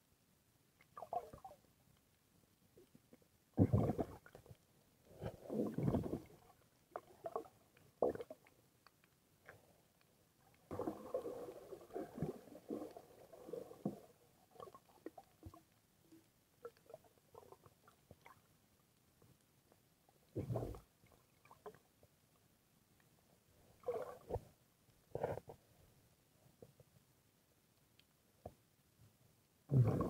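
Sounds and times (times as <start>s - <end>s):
water sloshing and splashing: 5.1s - 8.4s, 10.7s - 15.6s, 23.8s - 24.4s.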